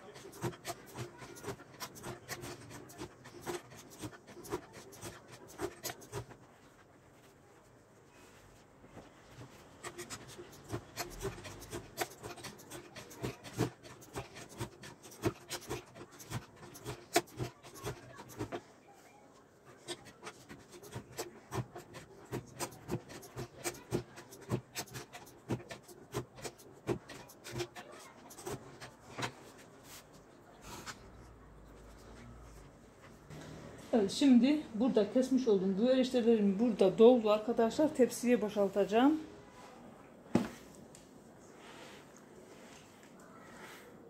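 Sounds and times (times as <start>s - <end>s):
knife chopping on wood: 0.0s - 6.4s, 9.8s - 18.6s, 19.9s - 29.4s.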